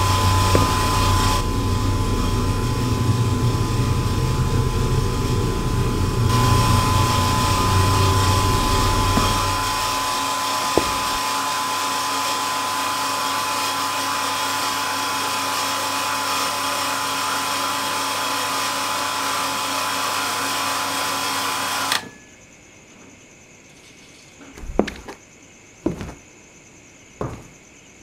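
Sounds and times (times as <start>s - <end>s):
water pump motor humming: 0.0s - 4.0s, 6.1s - 11.8s.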